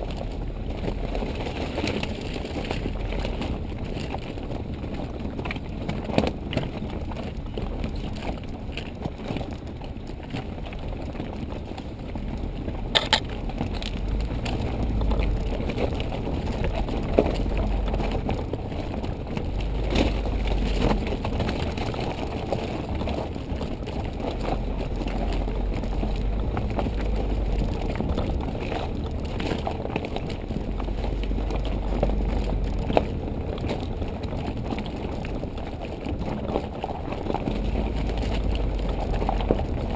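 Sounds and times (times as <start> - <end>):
vehicle rumbling on gravel: 0.0 - 39.9
rattling clicks and knocks: 12.9 - 17.6.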